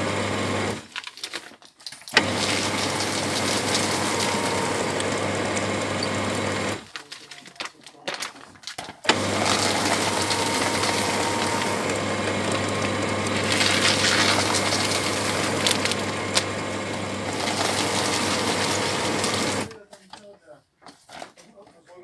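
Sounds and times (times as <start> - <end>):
paper shredder motor hum: 0.0 - 1.1, 2.1 - 7.0, 9.0 - 19.8
shredder cutters chewing paper: 0.2 - 19.9.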